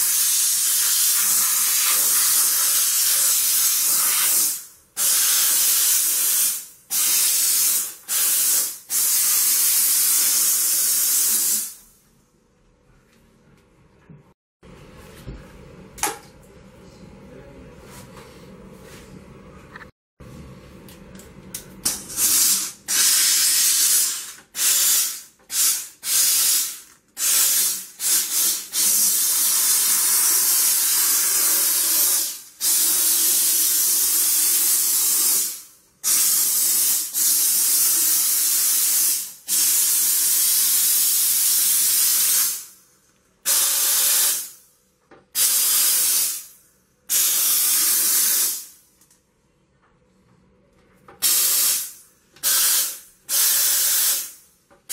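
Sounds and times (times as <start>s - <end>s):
steam cleaner hissing: 0.0s - 11.8s, 22.0s - 42.8s, 43.5s - 44.6s, 45.4s - 46.5s, 47.1s - 48.7s, 51.2s - 54.4s.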